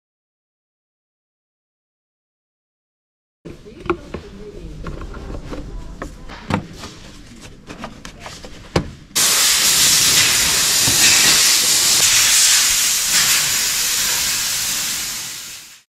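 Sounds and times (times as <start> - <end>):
loud steady air hiss: 9.2 - 15.9.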